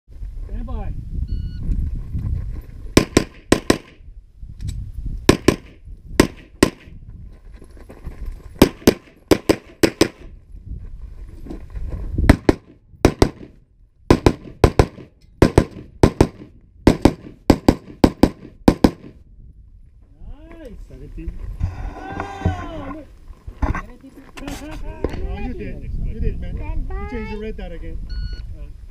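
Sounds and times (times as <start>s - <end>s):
gunshots: 3.0s - 4.0s, 5.3s - 6.9s, 8.6s - 10.2s, 12.3s - 19.2s.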